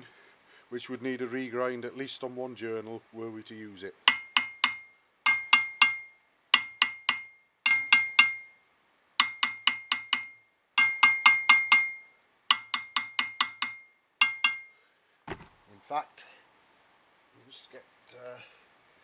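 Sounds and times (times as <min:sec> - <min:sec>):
hammer tapping metal with ringing: 0:04.1 - 0:08.6, 0:09.2 - 0:14.8.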